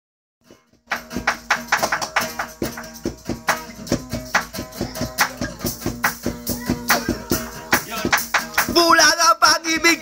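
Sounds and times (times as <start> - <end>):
pop instrumental beat: 0.4 - 10.0.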